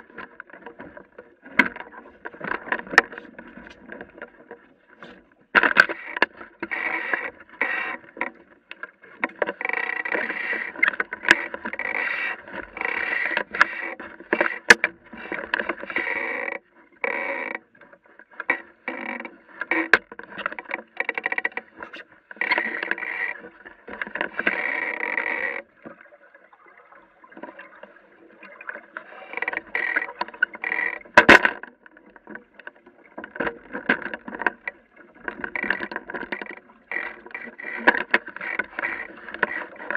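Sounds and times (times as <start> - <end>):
water slapping against boat hull: 0.0 - 16.4, 27.3 - 39.9.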